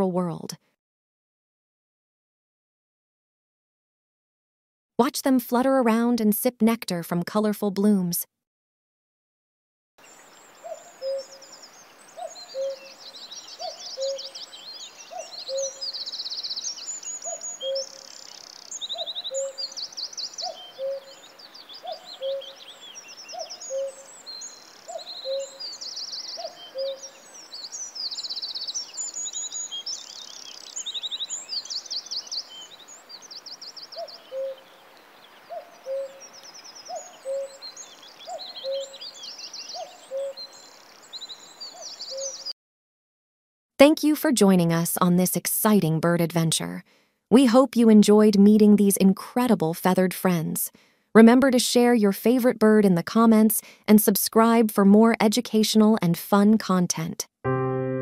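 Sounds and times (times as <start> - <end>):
small birds singing: 10.0 - 42.6
low two-note hoot: 57.5 - 58.0.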